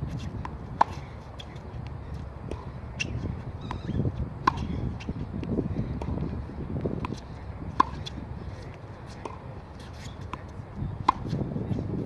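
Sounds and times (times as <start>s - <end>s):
tennis racket hitting ball: 2.4s - 5.1s, 7.0s - 8.2s, 9.1s - 11.8s.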